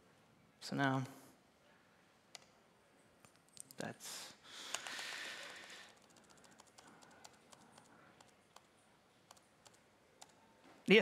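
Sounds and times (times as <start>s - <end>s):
soft breathy hiss: 3.8s - 8.5s
laptop keys tapping: 5.8s - 8.7s, 9.3s - 10.4s.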